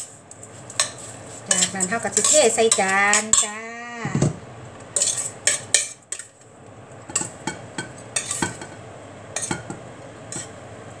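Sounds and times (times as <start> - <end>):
utensil scraping a metal pot: 0.7 - 3.6, 5.0 - 6.3, 8.2 - 8.7.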